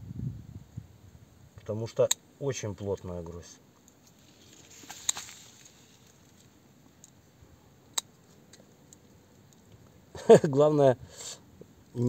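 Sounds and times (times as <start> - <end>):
rustling of grape bunch: 4.0 - 6.6.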